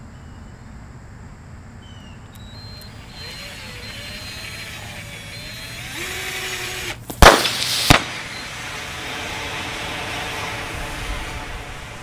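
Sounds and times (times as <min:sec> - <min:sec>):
cordless drill running: 0:02.4 - 0:07.2, 0:08.2 - 0:11.7
battery venting with loud pop: 0:02.4 - 0:08.8
battery hissing: 0:02.4 - 0:12.0.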